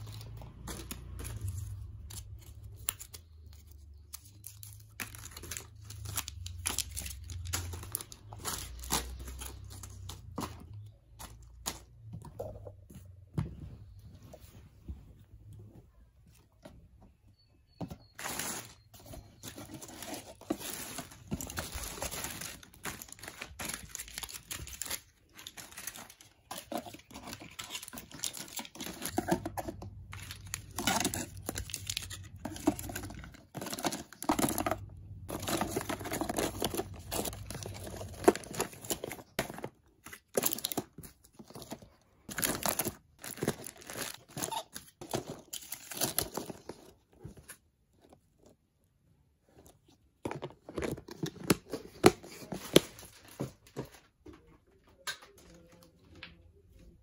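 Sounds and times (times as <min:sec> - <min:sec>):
blister packs crinkling: 0:18.2 - 0:47.0.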